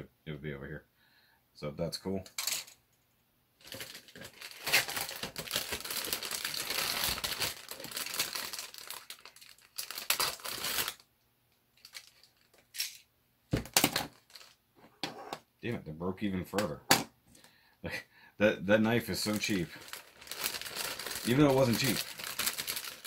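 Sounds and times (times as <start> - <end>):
plastic bag crinkling: 3.6 - 11.0, 11.8 - 12.7, 13.7 - 14.6, 19.1 - 23.0.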